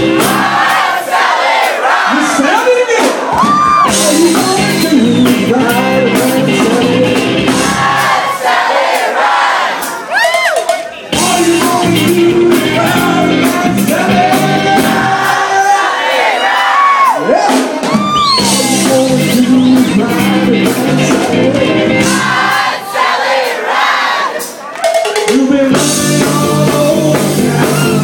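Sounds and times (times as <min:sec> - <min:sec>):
live band with drums: 0:00.0 - 0:28.0
man singing: 0:03.8 - 0:07.8, 0:11.1 - 0:16.0, 0:17.2 - 0:22.2, 0:25.2 - 0:28.0.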